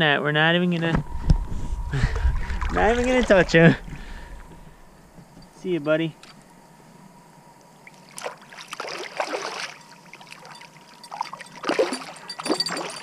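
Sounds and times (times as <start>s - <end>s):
water splashing and sloshing: 1.3s - 5.2s, 7.8s - 13.0s.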